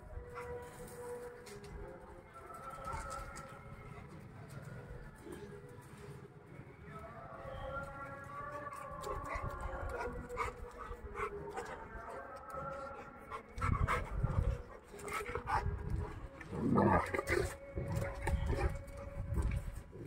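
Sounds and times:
dogs panting: 0:08.4 - 0:20.0
dogs growling: 0:08.9 - 0:19.1.

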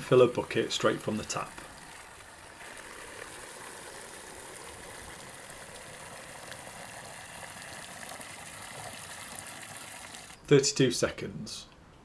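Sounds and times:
water pouring into plastic bucket: 0:00.0 - 0:10.4.

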